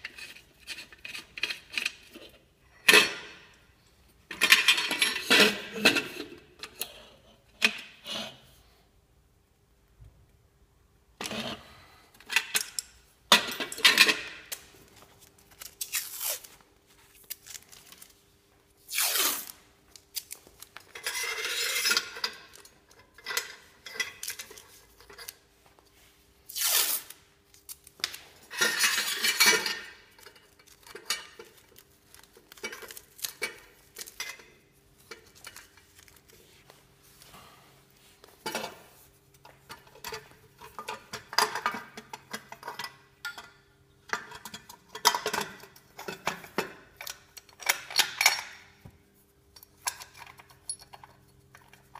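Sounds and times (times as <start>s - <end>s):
metal clinks clanks and scrapes: 0.0s - 3.6s, 4.3s - 8.4s, 12.2s - 14.5s, 20.8s - 25.4s, 28.4s - 31.8s, 38.4s - 48.7s, 49.6s - 51.9s.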